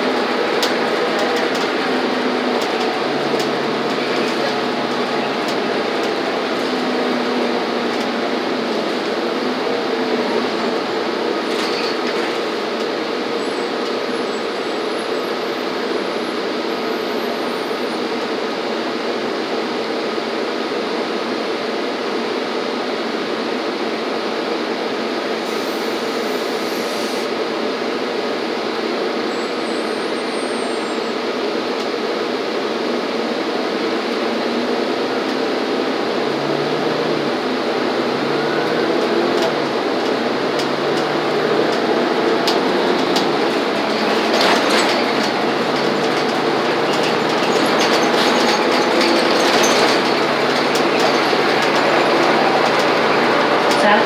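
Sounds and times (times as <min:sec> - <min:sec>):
bus engine and road noise: 0:00.0 - 0:54.0.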